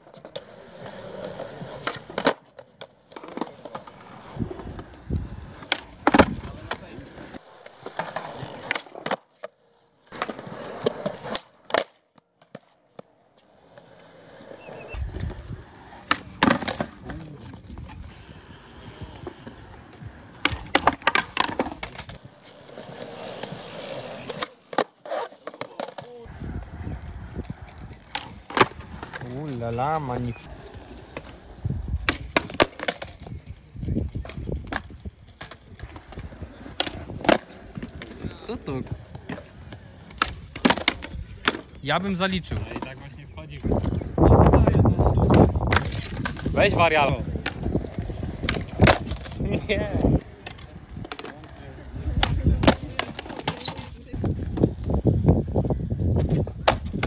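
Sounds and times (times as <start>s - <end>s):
skateboard wheels rolling on concrete: 0.0s - 57.0s
skateboard tail pops and landings: 56.1s - 57.0s.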